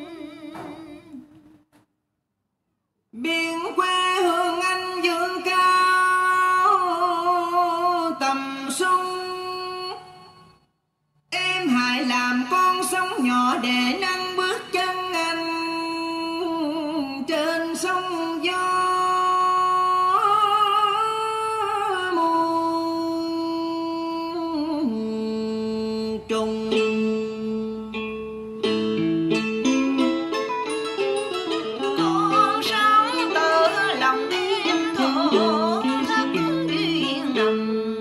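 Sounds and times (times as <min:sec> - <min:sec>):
person singing with vibrato: 0:00.0 - 0:01.6, 0:03.1 - 0:10.7, 0:11.3 - 0:38.0
plucked strings backing track: 0:26.2 - 0:38.0.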